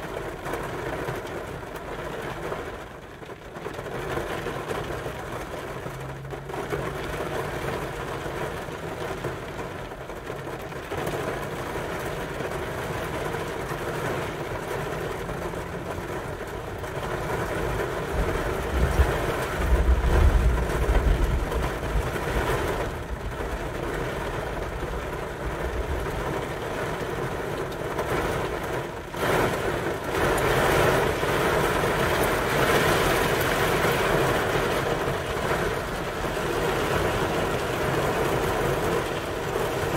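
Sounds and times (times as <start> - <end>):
rain on a car windshield and roof: 0.0 - 39.9
low thunder rumble: 18.1 - 23.7.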